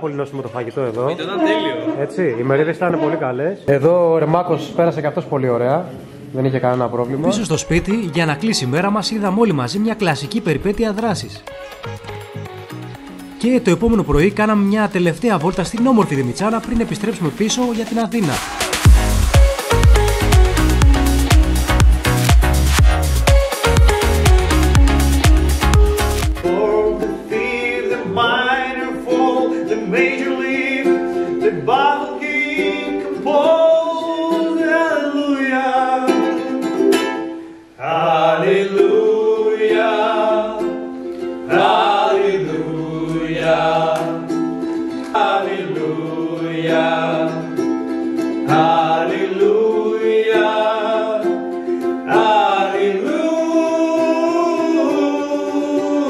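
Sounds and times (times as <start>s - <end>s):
ukulele strumming: 7.2s - 37.8s, 38.6s - 56.0s
men singing together: 26.4s - 36.5s, 37.8s - 40.8s, 41.5s - 47.6s, 48.4s - 51.4s, 52.0s - 56.0s.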